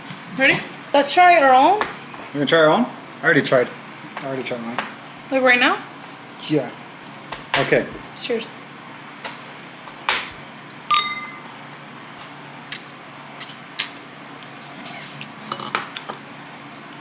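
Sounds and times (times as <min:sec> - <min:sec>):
glasses clinking in a toast: 0:10.9 - 0:11.4
glasses knocking on countertop: 0:10.9 - 0:11.4.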